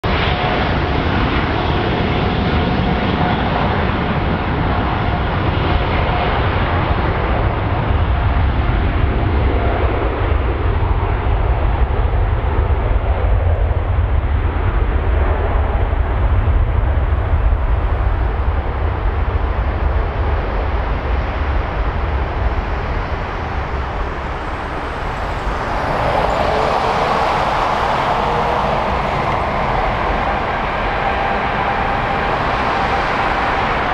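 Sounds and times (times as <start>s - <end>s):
jet engines rumbling: 0.0s - 33.9s
rushing jet noise: 16.2s - 33.9s.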